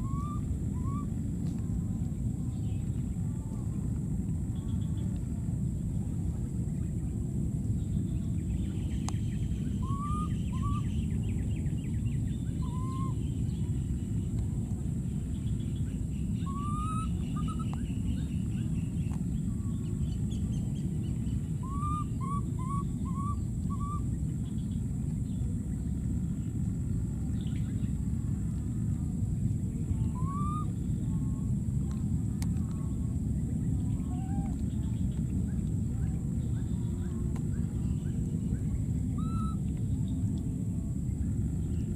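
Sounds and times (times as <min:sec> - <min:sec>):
baby monkey coo calls: 0:00.0 - 0:01.1, 0:09.8 - 0:10.9, 0:12.6 - 0:13.2, 0:16.4 - 0:17.8, 0:21.6 - 0:24.0, 0:30.0 - 0:31.4, 0:34.0 - 0:34.6, 0:39.1 - 0:39.6
steady low rumble: 0:00.0 - 0:41.9.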